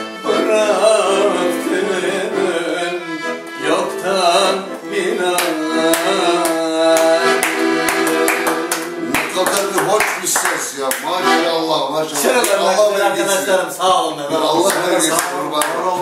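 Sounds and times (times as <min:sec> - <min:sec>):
man singing: 0:00.0 - 0:09.1, 0:14.2 - 0:16.0
accordion playing: 0:00.0 - 0:16.0
sharp hand claps: 0:05.4 - 0:11.2, 0:14.6 - 0:15.8.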